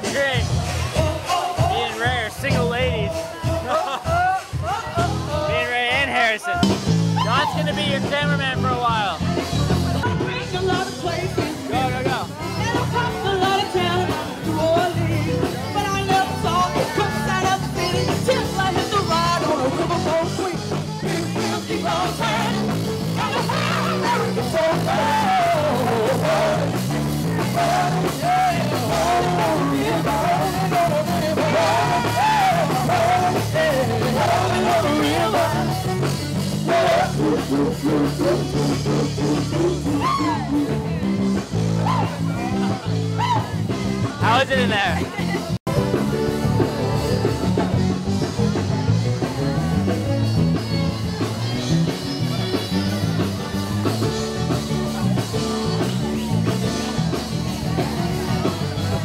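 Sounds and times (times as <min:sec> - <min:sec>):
live rock band playing: 0:00.0 - 0:59.0
person singing: 0:12.4 - 0:44.2.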